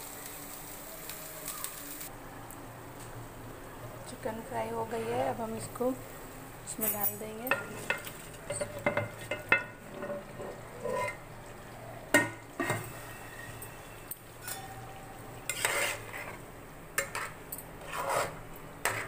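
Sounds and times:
spoon clinking against metal: 6.8s - 10.1s, 13.5s - 15.6s
spoon stirring and scraping in pan: 6.8s - 11.4s, 12.1s - 19.0s.

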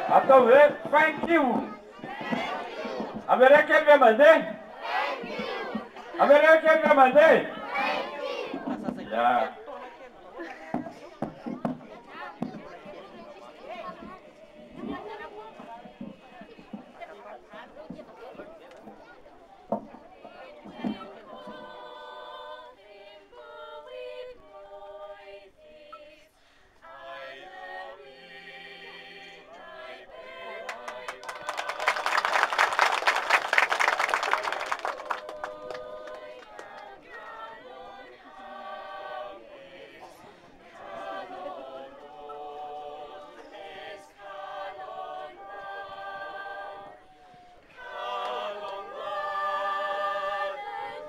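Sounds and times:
people clapping: 0.0s - 6.3s, 30.6s - 37.8s, 47.8s - 49.4s
group of young voices singing: 0.0s - 18.0s, 20.1s - 32.6s, 34.2s - 51.0s.

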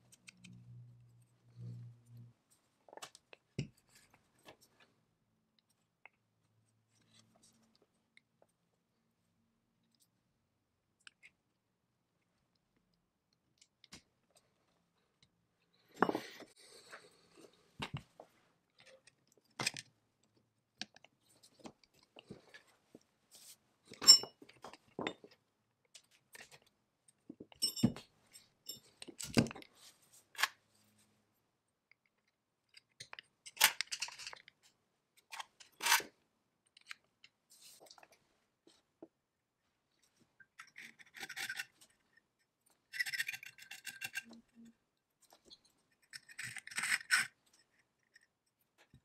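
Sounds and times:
small parts clicking and tapping: 40.4s - 49.0s.

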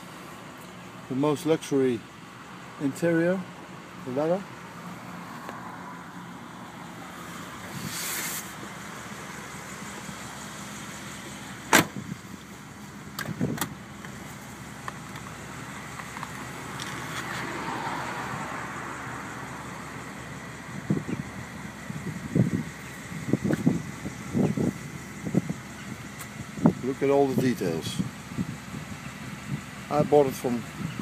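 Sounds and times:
brief hiss: 7.6s - 8.6s.

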